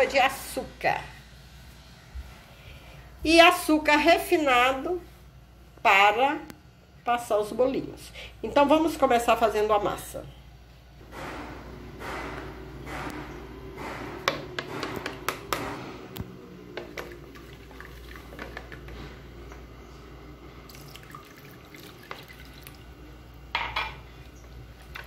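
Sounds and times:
eggs beaten in plastic bowl: 14.2 - 15.6
milk pouring: 16.9 - 19.0, 20.6 - 23.2.

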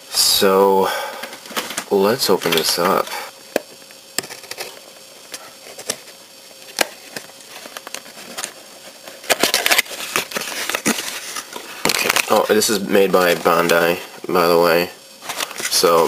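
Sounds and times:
cardboard rustling and scraping: 1.4 - 3.1, 4.2 - 14.4, 15.2 - 16.0.

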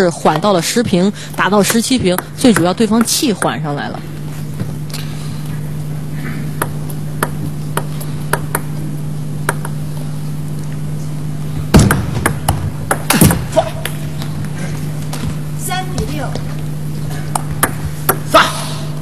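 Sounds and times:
steady low hum: 0.0 - 19.0
table tennis ball clicking: 1.7 - 3.6, 6.6 - 8.7, 9.4 - 9.8.

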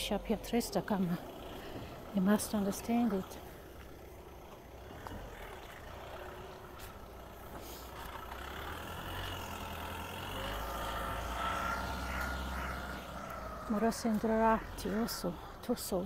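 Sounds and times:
motor vehicle engine: 0.0 - 16.0
steady whine: 0.0 - 16.0.

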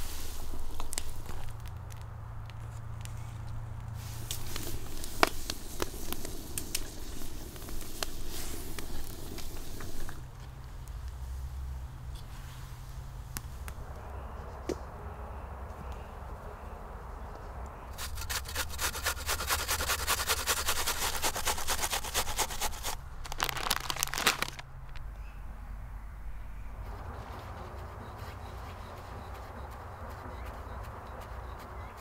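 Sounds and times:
wood fire crackling: 0.0 - 13.8, 17.9 - 25.1
onion grated on metal grater: 18.0 - 23.0.

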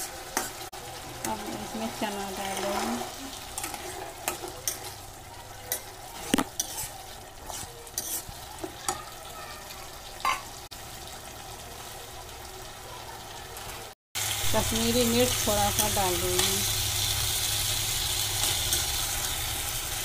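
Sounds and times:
metal spoon scraping a pan: 0.0 - 9.1, 15.6 - 19.8
food sizzling in a pan: 0.0 - 20.0.

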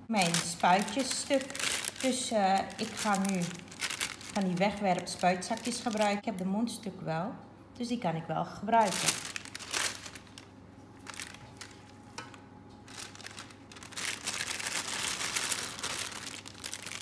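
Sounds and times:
plastic bag crinkling: 0.1 - 6.5, 8.8 - 17.0.

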